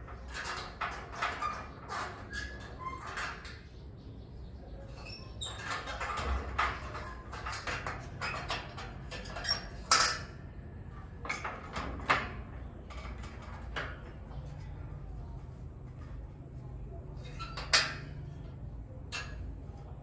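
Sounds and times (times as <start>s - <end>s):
metal gate latch rattling: 0.0s - 3.7s, 4.8s - 15.5s, 17.1s - 19.8s.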